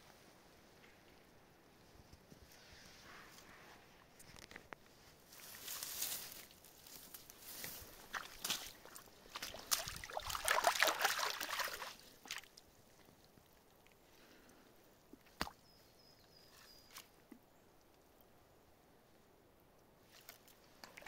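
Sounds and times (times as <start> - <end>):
dry grass rustling: 2.3 - 13.2
water sloshing and splashing: 8.0 - 12.6, 20.1 - 21.0.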